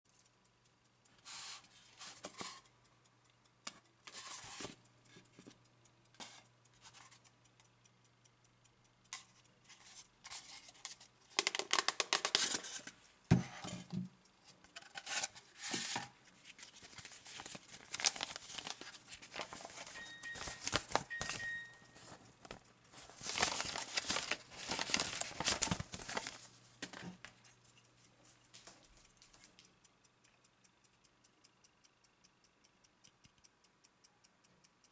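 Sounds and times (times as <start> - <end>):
paper crinkling: 9.7 - 13.0, 14.8 - 27.4.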